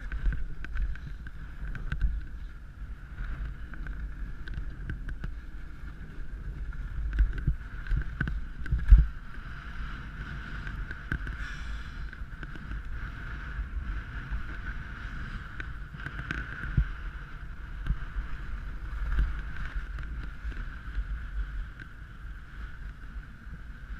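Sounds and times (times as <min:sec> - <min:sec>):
skis scraping on crusted snow: 0:00.0 - 0:23.9
wind buffeting microphone: 0:00.0 - 0:23.9.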